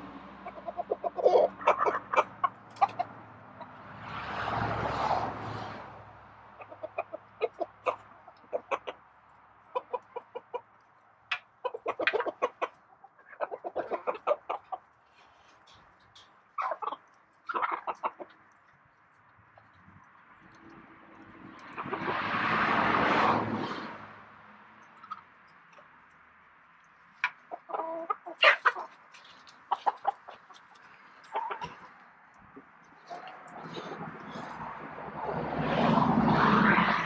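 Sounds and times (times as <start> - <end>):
hens clucking: 0.0 - 5.0, 6.3 - 24.1, 24.8 - 25.9, 26.8 - 37.0
rushing noise: 33.5 - 37.0.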